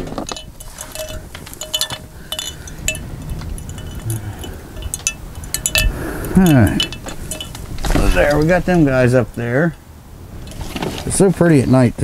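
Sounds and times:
solar lights clinking: 0.0s - 12.0s
short ringing taps: 0.2s - 8.4s.

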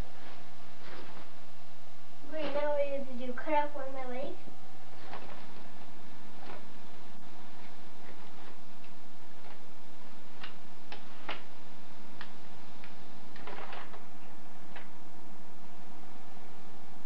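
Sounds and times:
faint hum: 0.0s - 17.0s
plastic package crinkling: 13.3s - 14.1s.

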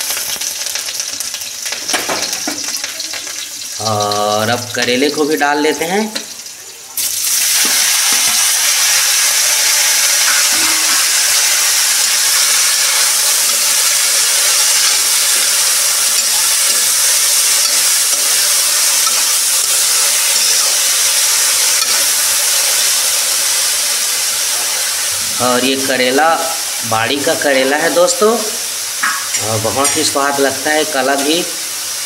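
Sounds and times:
vegetables sizzling in hot oil: 0.0s - 32.0s
metal spoon stirring: 10.2s - 22.8s.

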